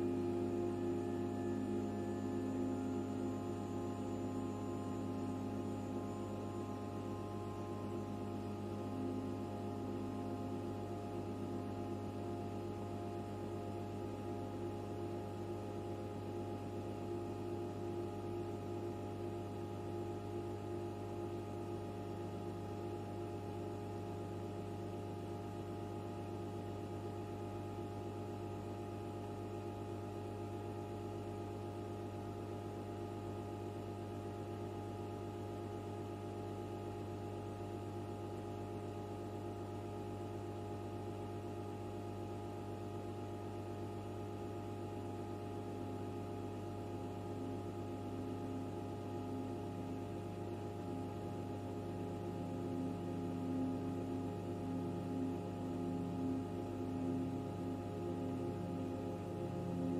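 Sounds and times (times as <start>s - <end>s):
desktop computer humming: 0.0s - 14.9s, 49.7s - 59.9s.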